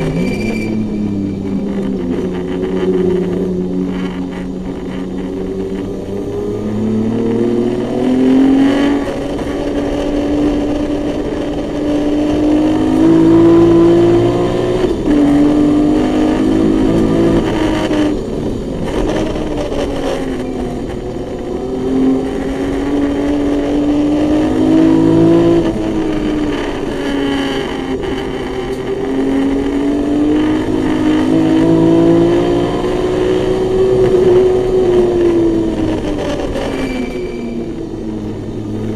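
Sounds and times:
race car engine at full throttle: 0.0 - 38.9.

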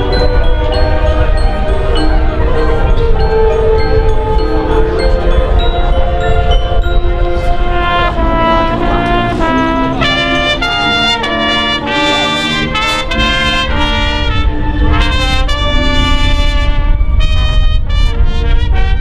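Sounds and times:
marching band brass playing: 0.0 - 19.0
trumpets: 0.0 - 19.0.

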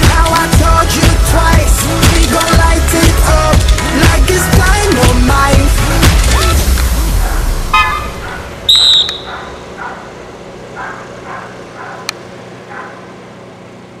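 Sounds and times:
dog barking: 7.2 - 13.1
shrill whistle blast: 8.7 - 9.3.

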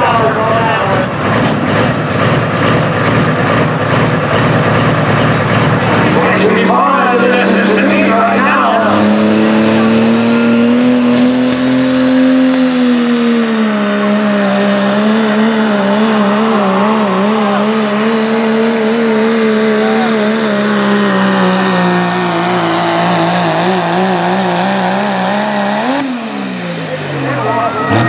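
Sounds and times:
diesel truck engine under load: 0.0 - 28.0
high thin whistle: 9.8 - 10.7.

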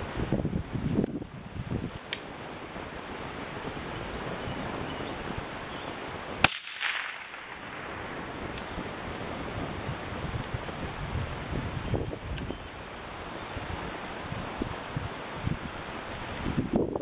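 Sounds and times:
rain: 0.0 - 17.0
wind: 0.0 - 17.0
rifle shot with echo: 6.4 - 8.7.

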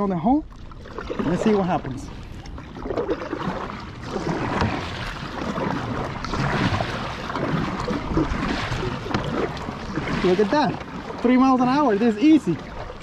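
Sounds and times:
paddle strokes splashing water: 0.0 - 13.0
wind rumbling on microphone: 0.0 - 13.0.

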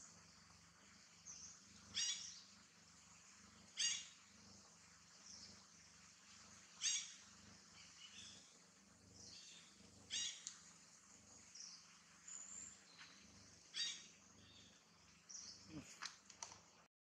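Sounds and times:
faint low hum: 0.0 - 16.9
high-pitched animal calls: 3.8 - 4.2.

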